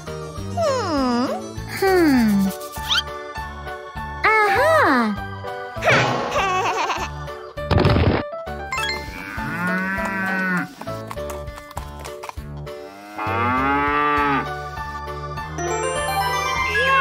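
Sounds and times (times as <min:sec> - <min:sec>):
cow mooing: 0:09.0 - 0:10.7, 0:12.9 - 0:14.5.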